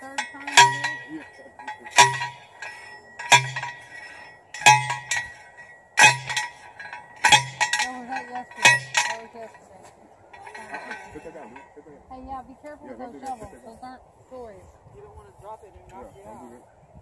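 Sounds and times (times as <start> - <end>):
post driver clanging on steel stake: 0.0 - 9.6, 10.3 - 11.7.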